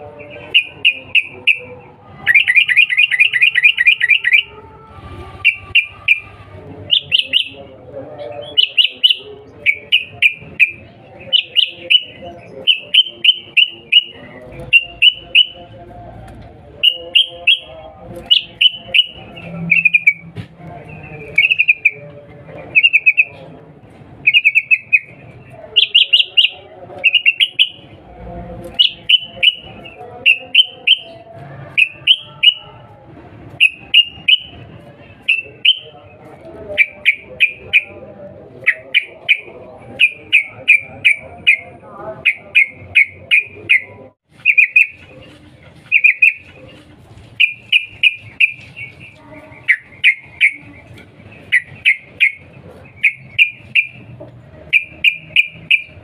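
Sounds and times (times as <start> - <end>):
bird chattering calls: 5.4 - 7.6, 24.2 - 25.2, 25.8 - 27.9, 38.6 - 45.2, 45.8 - 54.1, 54.7 - 56.0.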